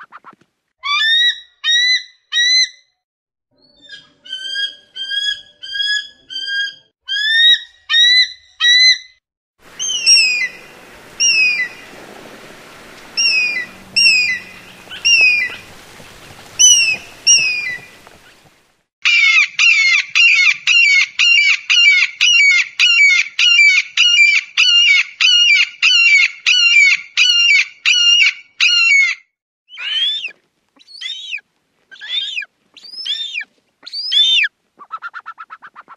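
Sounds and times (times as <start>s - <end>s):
background hiss: 9.6s - 18.8s
eagle calls: 9.7s - 18.5s.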